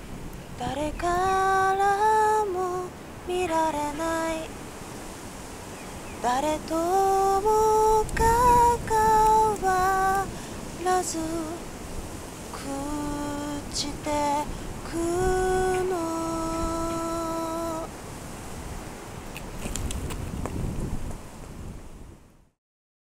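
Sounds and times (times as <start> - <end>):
woman singing slow melody: 0.5 - 4.6, 6.1 - 18.0.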